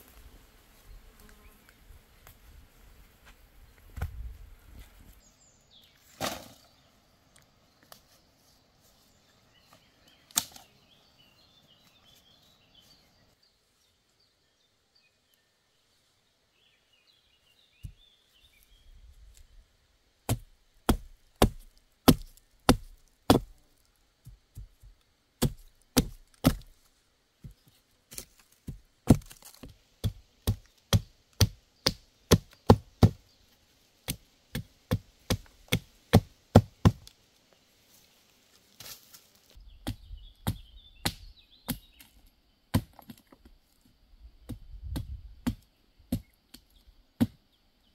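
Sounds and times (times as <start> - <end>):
axe chopping wooden stick: 20.3 - 23.6, 25.4 - 26.7, 28.1 - 33.2, 34.0 - 37.1, 39.8 - 41.8, 42.7 - 43.2.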